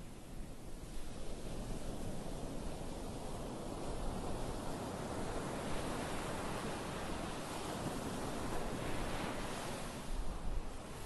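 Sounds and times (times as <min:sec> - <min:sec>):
wind rumble on microphone: 0:00.0 - 0:11.0
small waves breaking on beach: 0:00.8 - 0:11.0.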